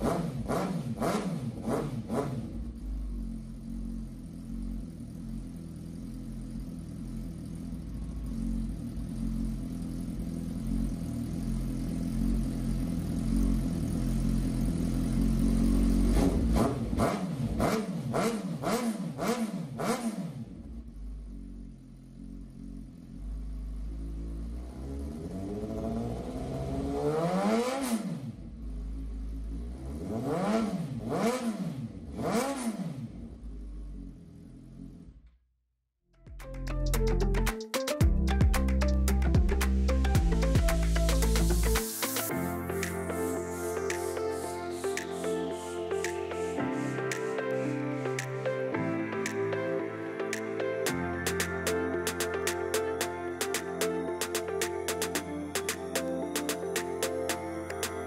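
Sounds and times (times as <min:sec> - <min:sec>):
motorcycle engine idling and revving: 0:00.0 - 0:35.6, 0:36.3 - 0:47.4, 0:51.2 - 0:58.0.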